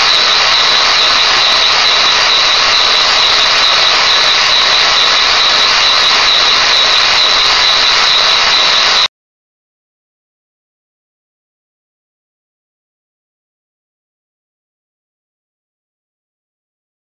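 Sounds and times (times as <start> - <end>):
toy engine hissing and whistling: 0.0 - 9.1.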